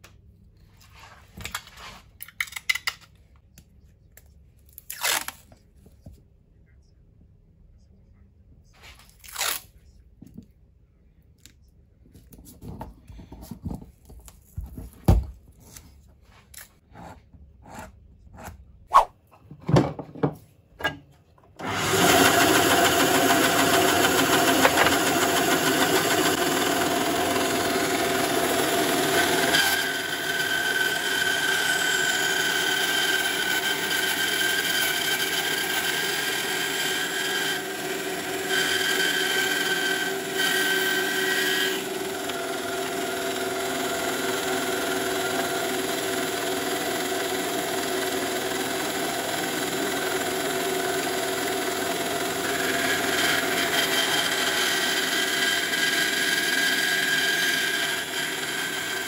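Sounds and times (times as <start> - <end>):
bandsaw running and cutting wood: 21.6 - 59.0.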